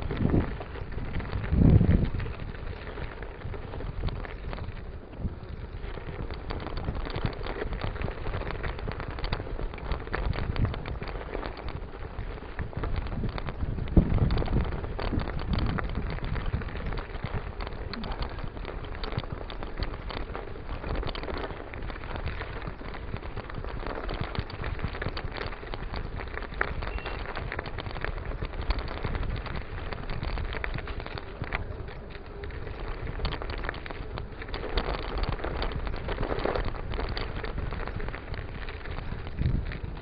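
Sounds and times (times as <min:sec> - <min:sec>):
bike tyres crunching on snow: 0:00.0 - 0:40.0
wind buffeting microphone: 0:00.0 - 0:40.0.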